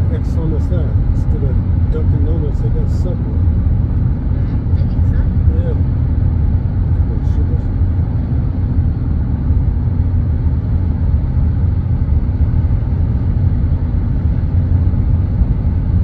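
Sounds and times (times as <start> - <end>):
road and engine rumble: 0.0 - 16.0.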